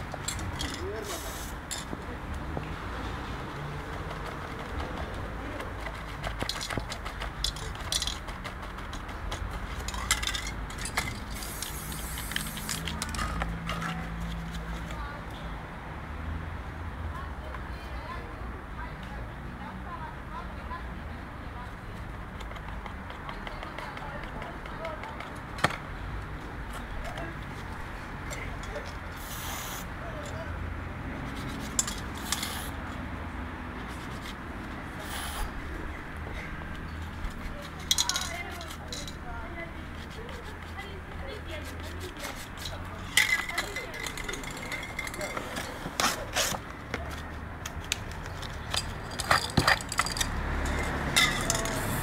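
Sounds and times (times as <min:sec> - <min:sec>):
spray paint can hissing: 0:01.0 - 0:01.6, 0:11.0 - 0:13.4, 0:29.2 - 0:29.9, 0:32.2 - 0:32.8, 0:35.0 - 0:35.5, 0:51.5 - 0:52.0
hands handling paint tools: 0:04.1 - 0:15.0, 0:36.7 - 0:52.0.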